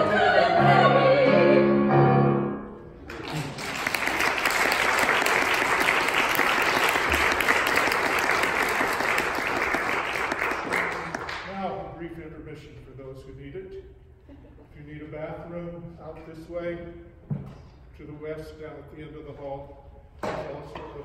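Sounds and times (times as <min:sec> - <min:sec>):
vocal quartet with piano: 0:00.0 - 0:02.7
audience applause: 0:03.0 - 0:11.5.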